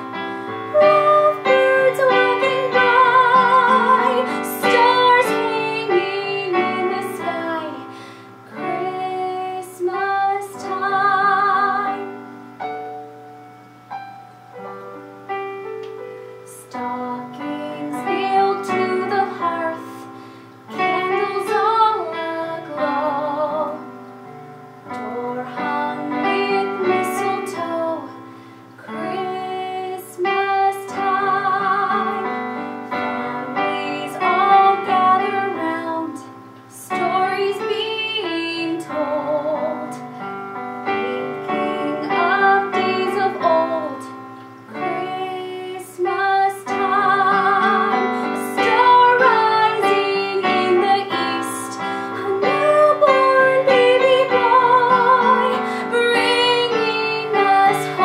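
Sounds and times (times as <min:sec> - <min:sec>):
woman singing with vibrato: 0:00.0 - 0:12.6, 0:16.5 - 0:24.0, 0:24.9 - 0:58.0
piano chords: 0:00.0 - 0:58.0
singer breathing: 0:07.9 - 0:08.4, 0:20.0 - 0:20.6, 0:28.2 - 0:28.8, 0:55.6 - 0:55.9.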